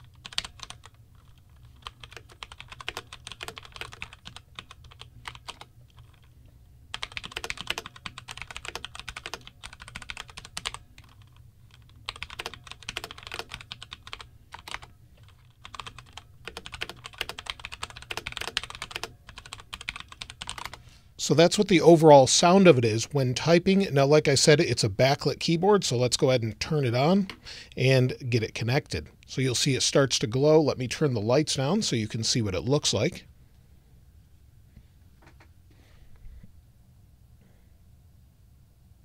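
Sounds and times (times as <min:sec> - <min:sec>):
mechanical keyboard typing: 0:00.0 - 0:06.3, 0:06.9 - 0:20.8.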